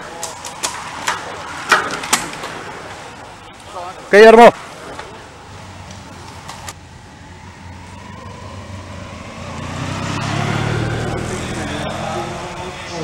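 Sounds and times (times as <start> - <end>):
motorcycle engine passing by: 6.9 - 13.0.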